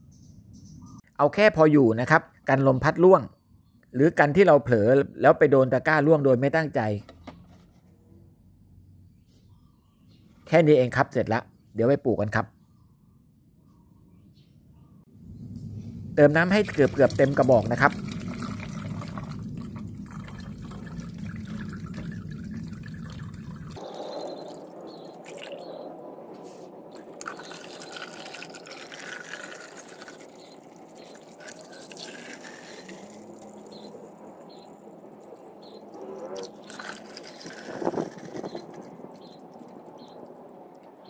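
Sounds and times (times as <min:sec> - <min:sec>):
water splashing into plastic tub: 0:26.9 - 0:34.2.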